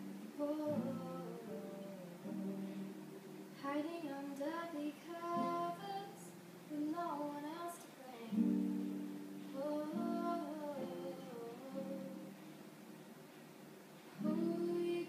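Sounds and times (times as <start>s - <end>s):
young woman singing: 0.0s - 2.8s, 3.5s - 12.4s, 14.2s - 15.0s
guitar chords: 0.0s - 3.6s, 8.3s - 12.5s.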